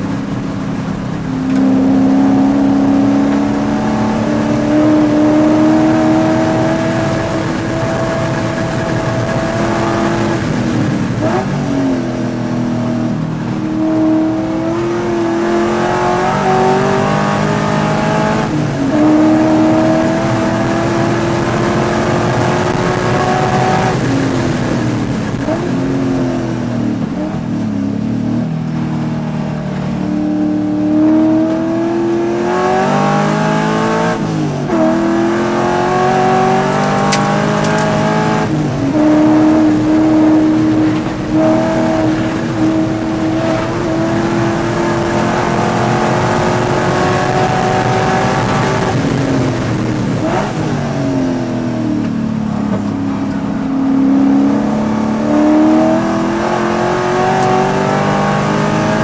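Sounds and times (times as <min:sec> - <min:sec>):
race car engine accelerating: 0:00.0 - 0:59.0.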